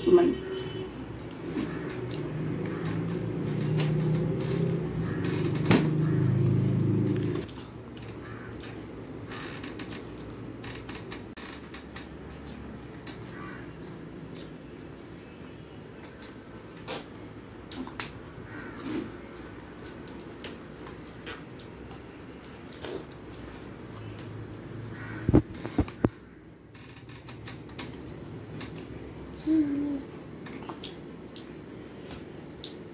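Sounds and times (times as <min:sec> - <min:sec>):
low background hum: 0:00.0 - 0:32.9
chewing: 0:12.4 - 0:24.6.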